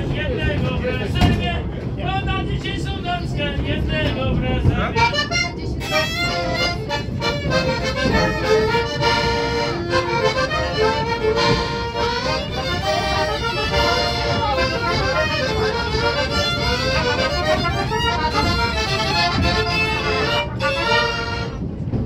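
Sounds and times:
accordion playing a tune: 4.9 - 21.7
trumpet playing a tune: 15.5 - 21.6.

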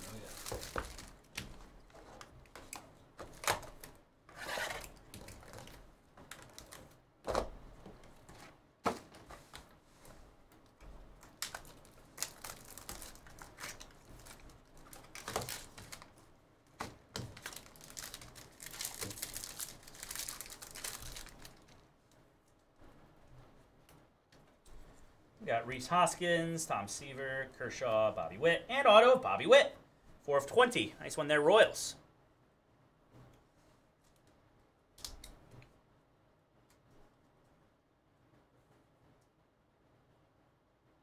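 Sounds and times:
cardboard packaging rustling: 0.0 - 7.0, 11.2 - 21.9
foil pack tearing open: 11.4 - 16.1, 17.2 - 21.6.

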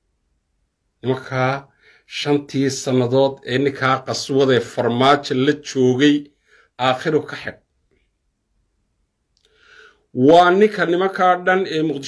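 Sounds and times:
faint mouth or breath sound: 9.4 - 10.1.

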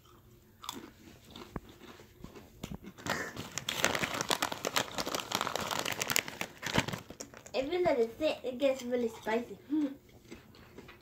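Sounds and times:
crunching potato chips: 0.0 - 7.6
foil bag crackling: 3.0 - 7.8.

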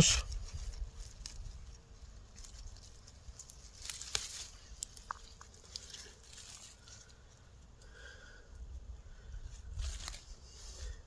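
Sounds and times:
leaves and soil rustling: 0.0 - 11.0.

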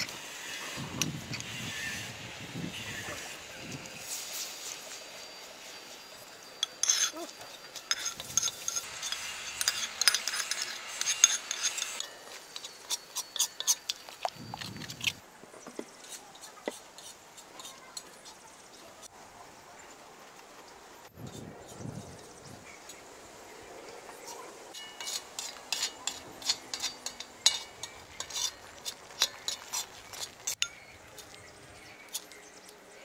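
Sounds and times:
metal spoon scraping a wok: 0.0 - 4.7, 6.4 - 15.2, 24.7 - 32.7
paste sizzling in hot oil: 0.0 - 14.7
cheese scraping on a grater: 6.8 - 14.0, 25.0 - 30.6.

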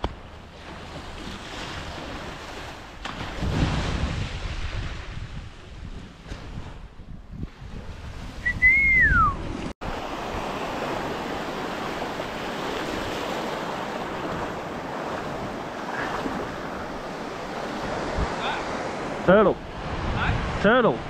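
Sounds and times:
sea water lapping: 0.0 - 6.9, 7.8 - 21.0
wind buffeting microphone: 1.2 - 21.0
short sliding whistle: 8.4 - 9.4.

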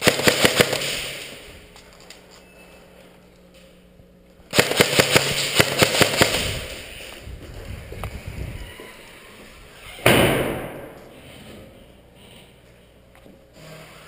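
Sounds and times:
airsoft guns firing rapid shots: 0.0 - 1.5, 4.5 - 6.9
sudden loud burst of noise: 10.0 - 11.2.

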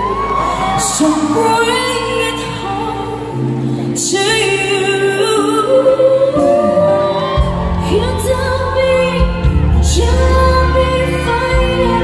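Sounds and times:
women singing a pop ballad: 0.8 - 12.0
backing band: 5.4 - 12.0.

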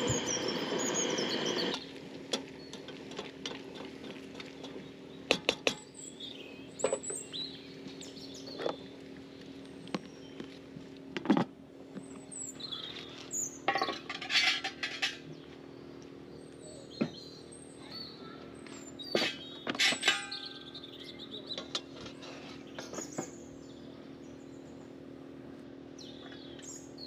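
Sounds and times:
high bird chirps: 0.0 - 1.9, 18.8 - 21.7
steady low hum: 0.0 - 27.0.

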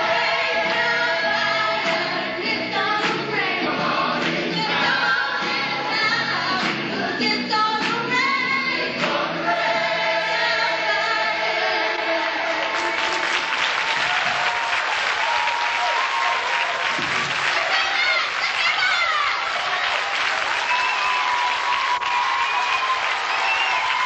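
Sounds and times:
choir singing held notes: 0.0 - 7.2, 8.2 - 13.5
audience applause: 12.5 - 24.0.

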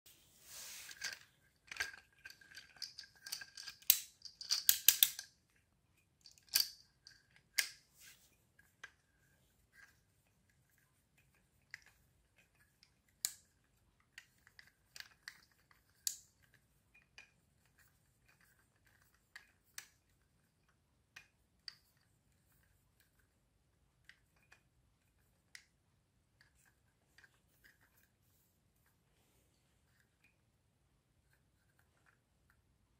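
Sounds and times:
plastic toy car clicking: 0.9 - 5.4, 6.2 - 7.8, 11.2 - 23.2.

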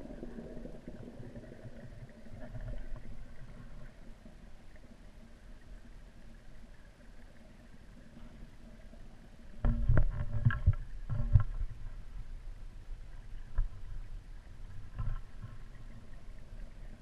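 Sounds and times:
faint steady tones: 0.0 - 17.0
underwater thumps and knocks: 9.6 - 11.9, 14.8 - 15.8.

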